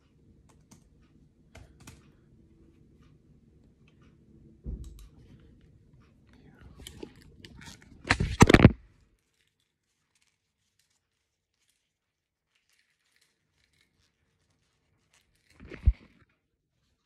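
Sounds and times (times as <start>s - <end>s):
phone handling thump and rustle: 8.1s - 8.8s.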